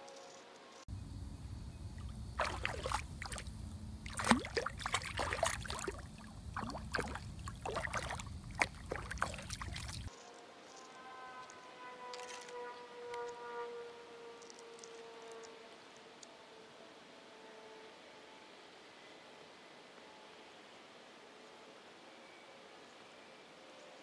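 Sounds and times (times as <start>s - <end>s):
steady low rumble: 0.9s - 10.1s
water splashing and sloshing: 1.9s - 10.1s.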